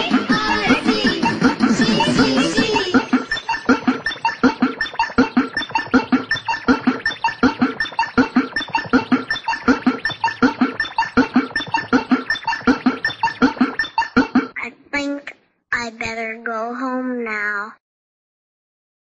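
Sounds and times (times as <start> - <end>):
short synth bleeps: 2.9 - 14.4.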